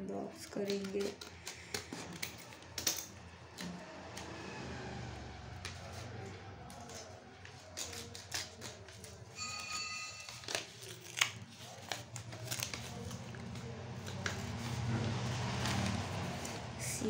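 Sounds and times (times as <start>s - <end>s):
paper crinkling and tearing: 5.8s - 16.7s.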